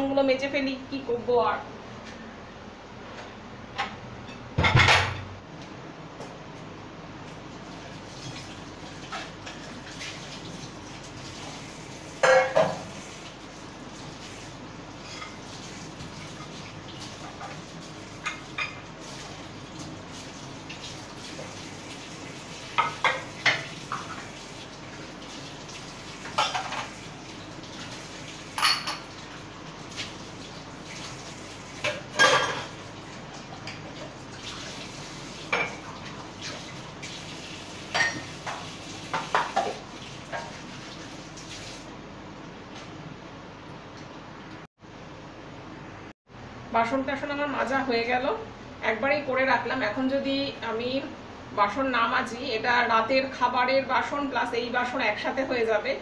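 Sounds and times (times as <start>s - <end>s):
dishes clinking and clattering: 3.8s - 5.3s, 12.2s - 13.0s, 18.2s - 18.8s, 22.7s - 24.2s, 26.2s - 27.0s, 28.5s - 29.3s, 31.8s - 32.8s, 35.5s - 36.7s, 37.9s - 40.6s
running tap water: 7.2s - 42.0s.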